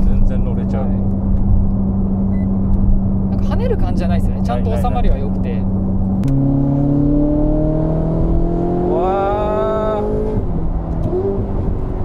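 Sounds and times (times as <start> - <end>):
car engine revving from cabin: 6.0 - 12.0.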